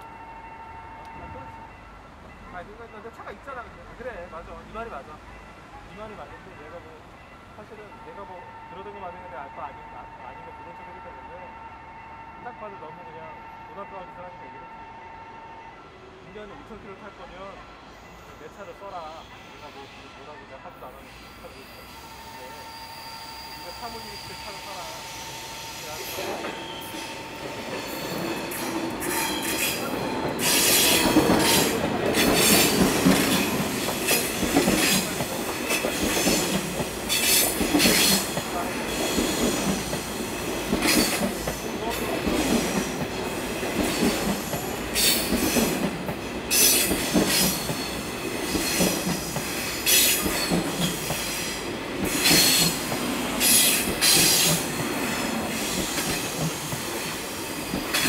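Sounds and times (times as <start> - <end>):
train wheels rumbling on rails: 20.9 - 58.0.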